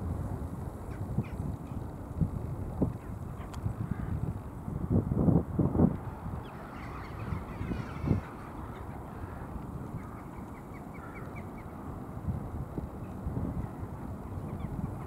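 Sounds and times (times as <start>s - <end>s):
wind buffeting microphone: 0.0s - 15.0s
birds calling: 0.8s - 1.9s, 6.0s - 12.0s, 13.0s - 15.0s.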